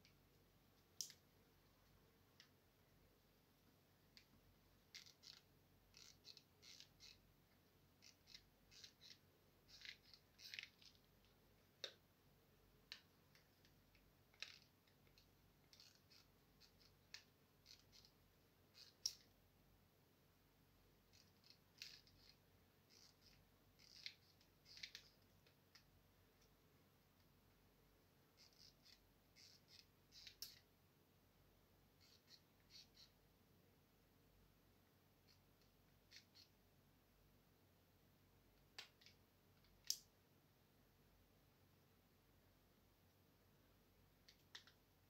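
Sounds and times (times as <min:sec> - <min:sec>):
faint small clicks: 0:00.8 - 0:01.3, 0:38.6 - 0:40.1, 0:44.2 - 0:44.8.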